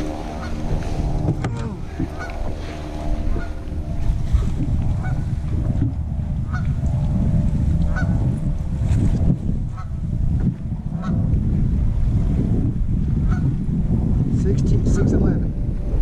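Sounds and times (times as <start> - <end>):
waterfowl honking calls: 0.0 - 1.0, 2.0 - 3.7, 4.3 - 5.3, 6.4 - 6.8, 7.9 - 8.2, 9.7 - 10.0, 11.0 - 11.2, 13.2 - 13.4
wind rumbling on microphone: 0.0 - 16.0.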